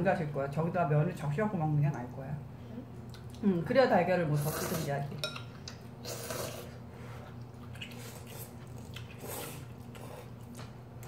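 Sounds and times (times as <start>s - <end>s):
noodles being slurped: 6.0s - 10.4s.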